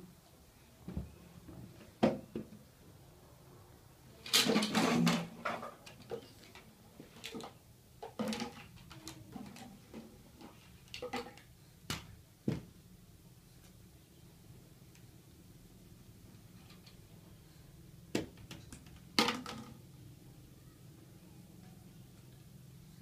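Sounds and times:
plastic toys knocking and clattering: 0:04.2 - 0:12.7, 0:18.1 - 0:19.8.

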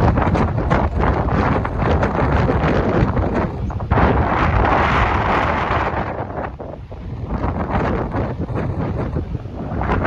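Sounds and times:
strong wind on microphone: 0:00.0 - 0:10.0.

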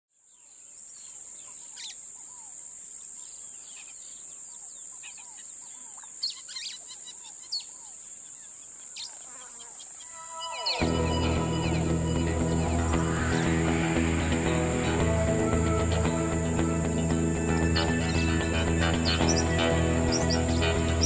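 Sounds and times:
high-pitched insect drone: 0:10.0 - 0:21.0.

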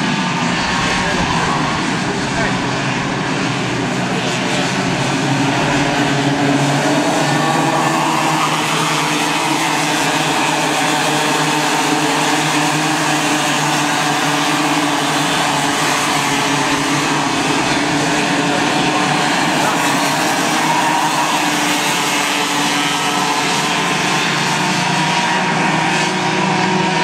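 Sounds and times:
kart engines buzzing: 0:00.0 - 0:27.0.

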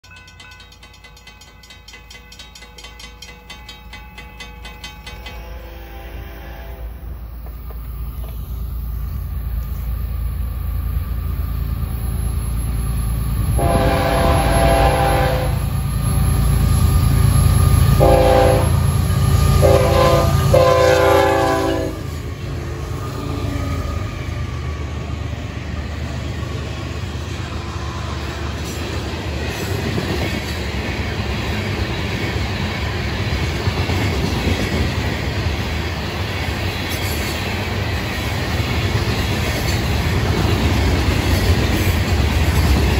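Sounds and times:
clickety-clack of wheels on rails: 0:00.0 - 0:06.0, 0:07.3 - 0:42.9
deep locomotive engine rumble: 0:00.0 - 0:42.9
train horn blasts: 0:05.2 - 0:07.2, 0:13.5 - 0:15.7, 0:18.0 - 0:22.2.

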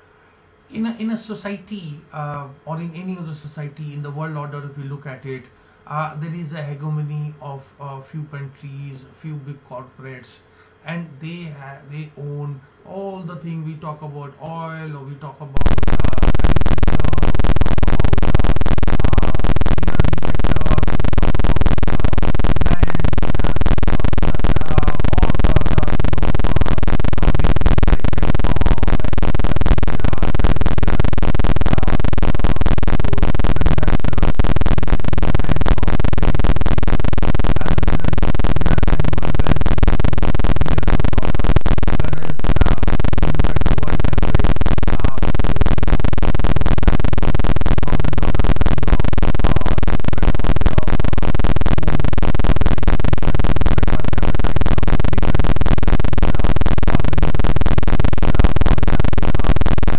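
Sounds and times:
loud garbled digital noise: 0:15.6 - 0:59.9.

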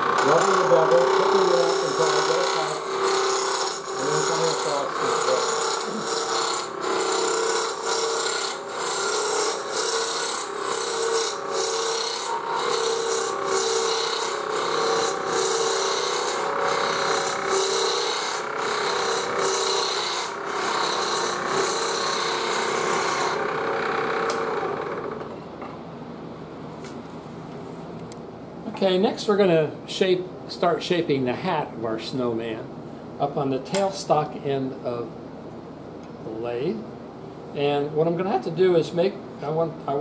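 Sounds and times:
gouge scraping wood on lathe: 0:00.0 - 0:24.1
lathe humming: 0:00.0 - 0:25.3.

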